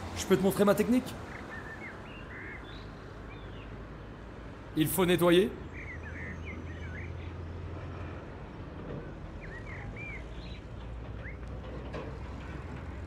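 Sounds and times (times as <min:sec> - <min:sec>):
city traffic rumble: 0:00.0 - 0:13.0.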